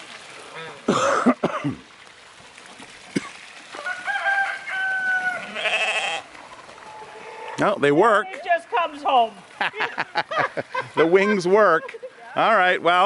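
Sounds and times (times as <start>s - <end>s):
rooster crowing: 3.7s - 6.2s.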